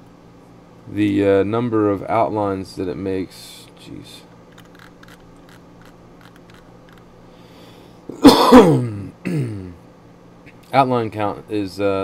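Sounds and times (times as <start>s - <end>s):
faint room hum: 0.0s - 12.0s
man coughing: 8.1s - 9.8s.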